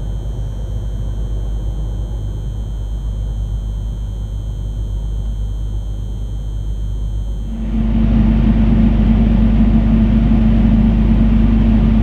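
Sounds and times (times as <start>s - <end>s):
diesel railcar engine rumble: 7.5s - 12.0s.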